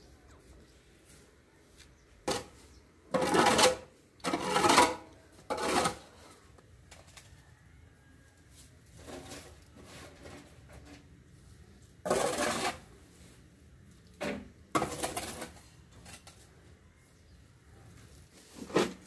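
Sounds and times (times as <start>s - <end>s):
metal shovel scraping floor: 2.2s - 6.4s, 9.0s - 11.1s, 12.0s - 13.3s, 14.2s - 16.4s, 18.4s - 19.0s.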